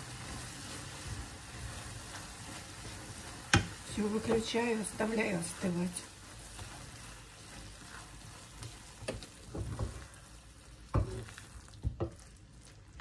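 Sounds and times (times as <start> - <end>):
apples sizzling in frying pan: 0.0 - 13.0
spatula knocking against pan: 3.5 - 4.5.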